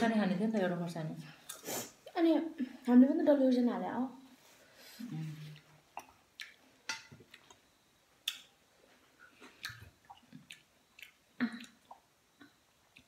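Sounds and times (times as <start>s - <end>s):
chewing clicks and smacks: 9.2s - 12.0s.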